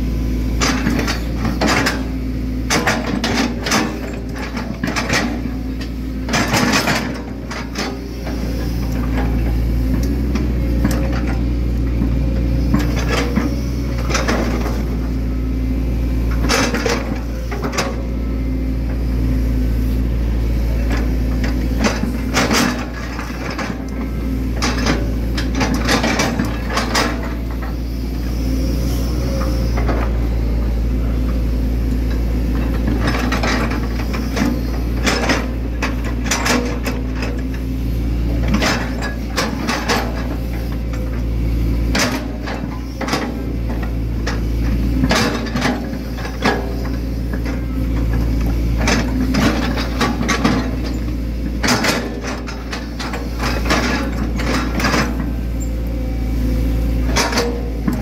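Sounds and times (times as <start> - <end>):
excavator diesel engine running: 0.0 - 58.0
excavator bucket clanks and knocks: 0.6 - 15.0, 16.3 - 18.1, 20.8 - 27.7, 32.0 - 37.6, 38.3 - 41.2, 41.9 - 55.4, 57.0 - 58.0.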